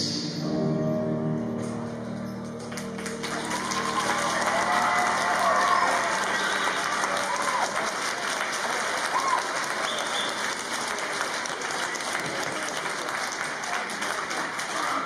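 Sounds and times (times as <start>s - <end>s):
audience applauding: 2.4s - 15.0s
short cheers: 3.3s - 8.1s, 8.9s - 10.6s.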